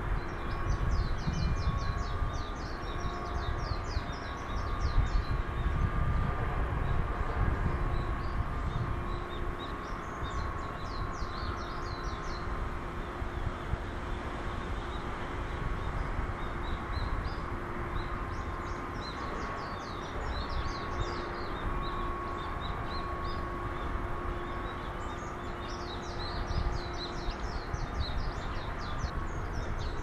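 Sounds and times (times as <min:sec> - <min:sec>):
faint hum: 0:00.0 - 0:30.0
low outdoor rumble: 0:00.0 - 0:30.0
small birds chirping: 0:07.8 - 0:30.0.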